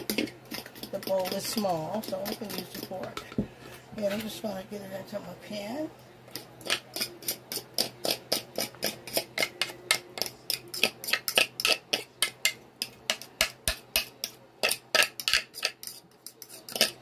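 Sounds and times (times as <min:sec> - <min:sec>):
fork scraping and tapping bowl: 0:00.0 - 0:04.4, 0:06.3 - 0:17.0.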